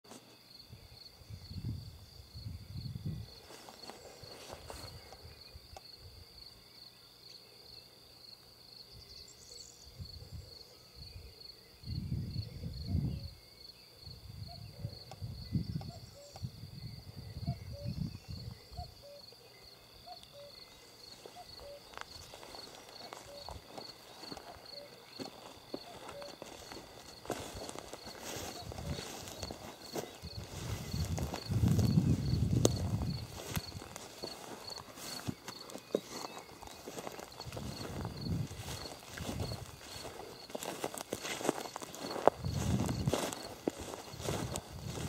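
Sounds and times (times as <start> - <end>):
cricket chirping: 0.1 - 45.0
footsteps on grass: 3.4 - 5.2, 20.8 - 45.0.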